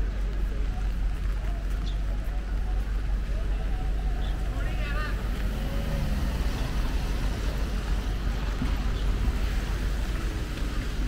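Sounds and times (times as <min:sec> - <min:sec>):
tyres hissing on wet pavement: 0:04.1 - 0:11.0.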